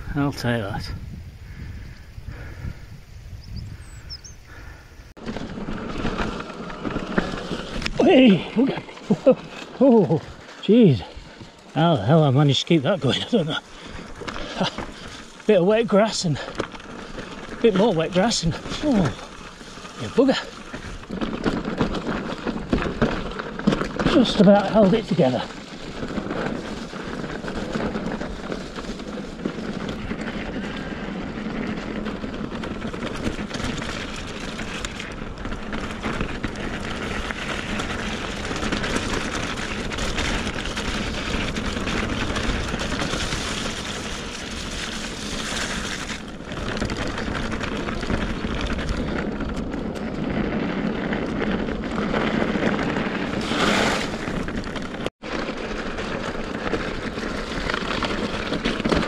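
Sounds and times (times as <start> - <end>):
wind buffeting microphone: 0.0 - 9.5
bike tyres rumbling on trail: 0.0 - 59.0.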